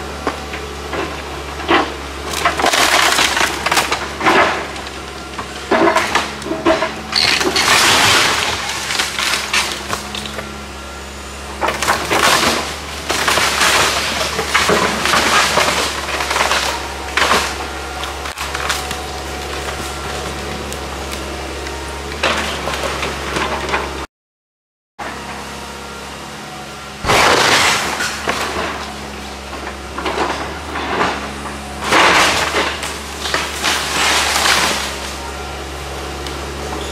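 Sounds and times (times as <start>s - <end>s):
excavator engine running: 0.0s - 24.1s, 25.0s - 36.9s
wood cracking and splintering: 0.2s - 10.5s, 11.6s - 23.9s, 27.0s - 35.2s
debris crashing down: 1.6s - 10.3s, 11.6s - 21.0s, 27.0s - 35.2s.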